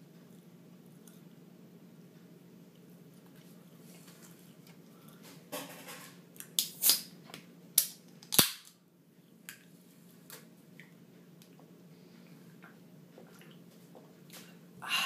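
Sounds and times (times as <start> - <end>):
soda can popping open: 7.8 - 8.7.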